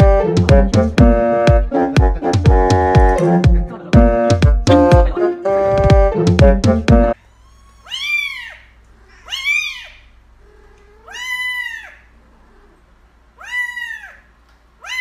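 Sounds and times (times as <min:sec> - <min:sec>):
kitten meowing: 0:07.2 - 0:12.8, 0:13.4 - 0:15.0.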